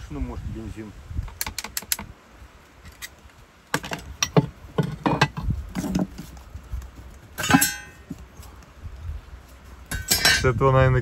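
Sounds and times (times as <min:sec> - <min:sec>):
metal tools knocking on wood floor: 0:03.8 - 0:06.1, 0:09.9 - 0:10.4
metallic clatter with ringing: 0:07.4 - 0:08.1, 0:09.9 - 0:10.5.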